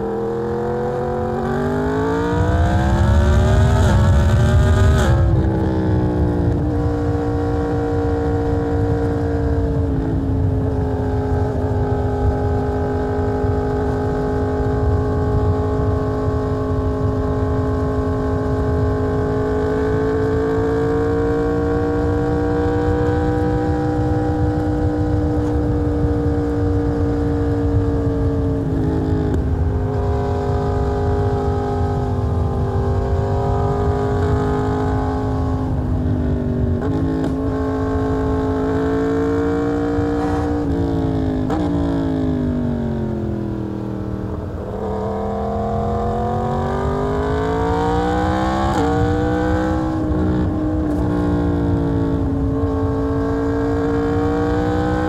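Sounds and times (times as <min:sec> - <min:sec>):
motorcycle engine accelerating: 0:00.0 - 0:55.0
wind on microphone: 0:00.0 - 0:55.0.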